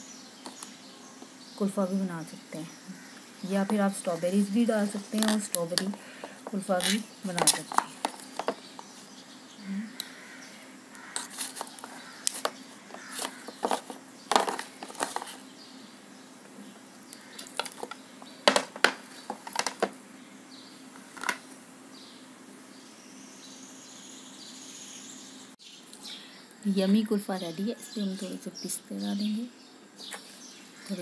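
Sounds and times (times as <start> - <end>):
faint steady hum: 0.0 - 31.0
knife scraping plastic tub: 6.7 - 8.7, 11.1 - 15.4.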